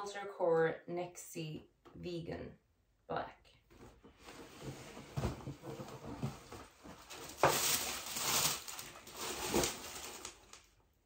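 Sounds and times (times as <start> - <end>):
packing paper rustling: 5.6 - 10.8.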